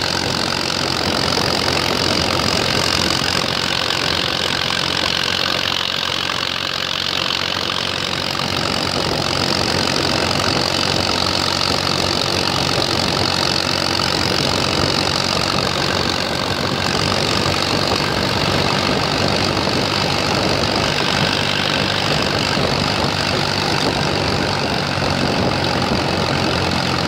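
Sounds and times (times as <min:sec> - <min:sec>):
tractor engine running: 0:00.0 - 0:27.0.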